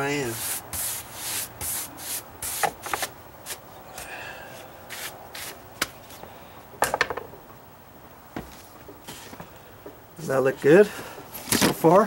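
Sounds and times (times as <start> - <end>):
brush sweeping wooden stair: 0.3 - 3.6.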